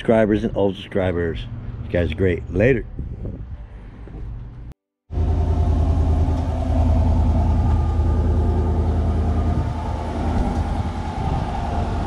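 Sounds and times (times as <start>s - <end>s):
pickup engine idling: 5.2s - 12.0s.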